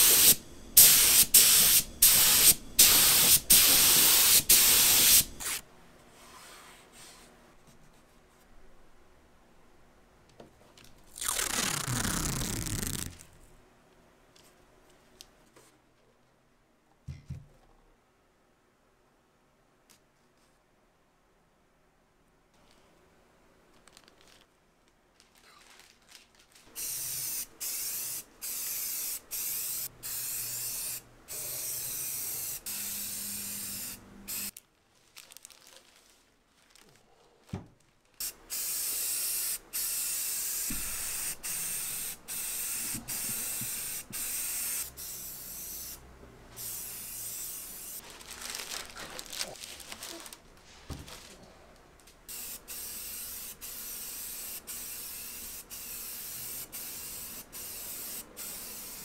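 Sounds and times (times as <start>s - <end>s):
spray paint can hissing: 0.0s - 5.6s, 26.8s - 34.5s, 38.2s - 46.0s, 46.6s - 48.0s, 52.3s - 59.0s.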